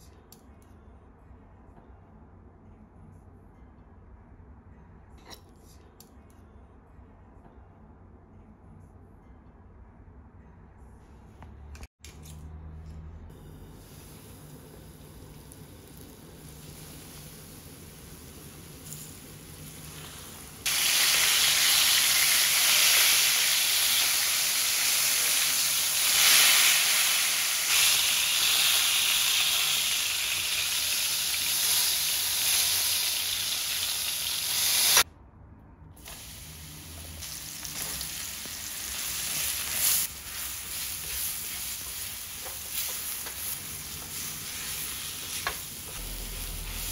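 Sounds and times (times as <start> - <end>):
mushrooms sizzling in pan: 13.8 - 35.0, 37.2 - 46.9
chicken frying in sizzling oil: 14.2 - 35.1.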